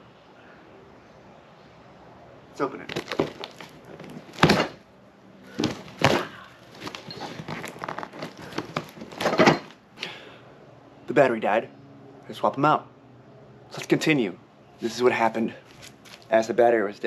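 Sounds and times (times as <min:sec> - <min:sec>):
cardboard and packing crinkling: 0:02.8 - 0:04.8, 0:05.5 - 0:09.7
cardboard box thunks: 0:02.9 - 0:04.8, 0:05.5 - 0:09.7.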